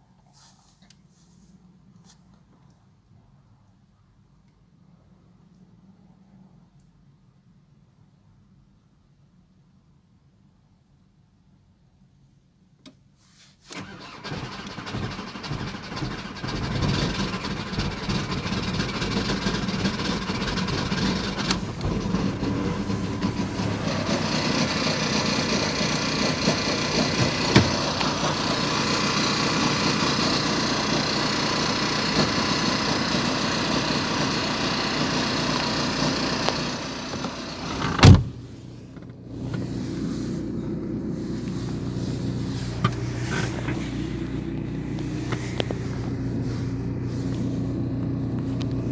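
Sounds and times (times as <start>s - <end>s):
diesel engine starting and running: 13.7s - 48.9s
loud thump: 37.8s - 38.4s.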